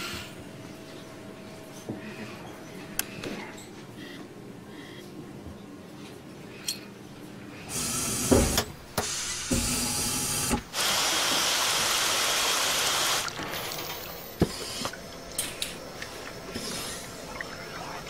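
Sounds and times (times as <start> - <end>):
milling machine coolant hiss: 7.7 - 18.0.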